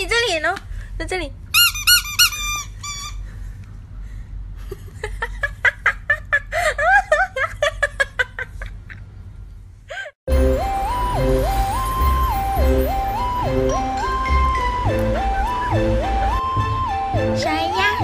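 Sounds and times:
squeaky dog toy squeaking: 0:01.5 - 0:03.3
music: 0:10.3 - 0:18.0.

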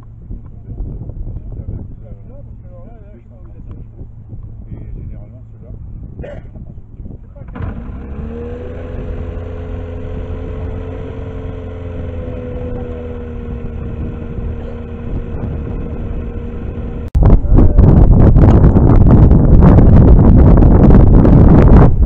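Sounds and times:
propeller aircraft engine drone: 0:00.0 - 0:22.0
wind buffeting microphone: 0:00.0 - 0:22.0.

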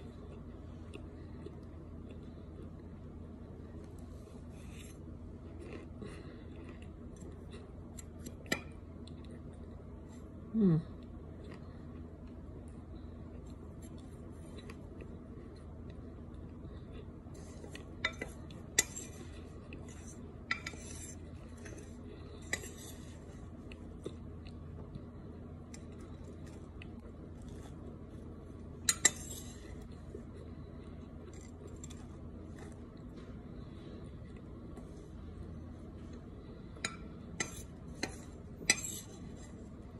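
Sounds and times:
soft crunching: 0:00.0 - 0:10.3.

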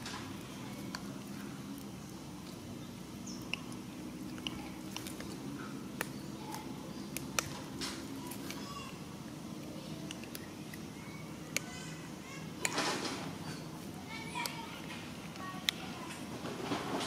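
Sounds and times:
macaques chewing food: 0:00.0 - 0:17.0
steady low hum: 0:00.0 - 0:17.0.

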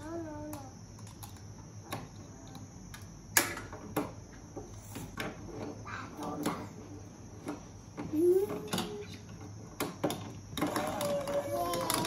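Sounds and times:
plastic blocks clicking together: 0:09.7 - 0:12.0.

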